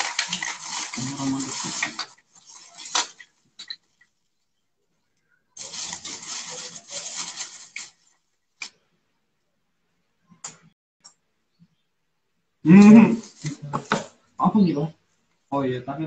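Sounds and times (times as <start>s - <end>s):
plastic packaging crinkling: 0.0s - 4.1s, 5.6s - 8.7s.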